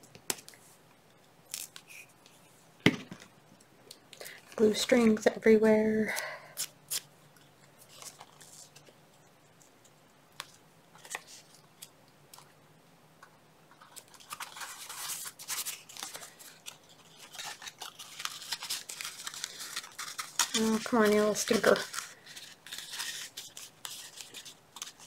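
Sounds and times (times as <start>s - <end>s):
paper rustling: 7.8s - 9.0s, 13.8s - 25.0s.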